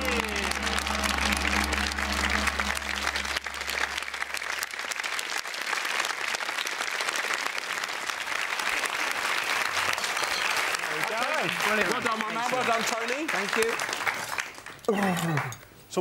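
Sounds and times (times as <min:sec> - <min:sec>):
low held music note: 0:00.0 - 0:04.7
audience applauding: 0:00.0 - 0:15.5.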